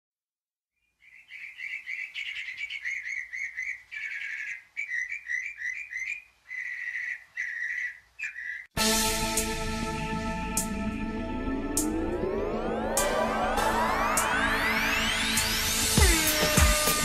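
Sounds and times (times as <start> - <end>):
small bird chirping: 0.8 - 8.7.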